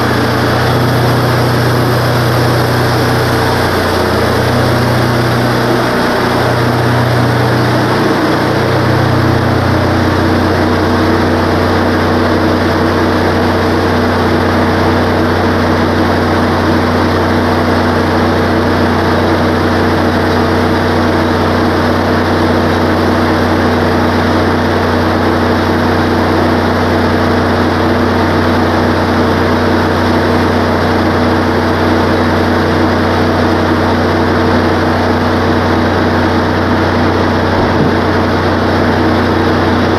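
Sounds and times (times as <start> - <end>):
wavering hum: 0.0 - 15.5, 37.0 - 39.0
sawmill engine running: 0.0 - 39.9.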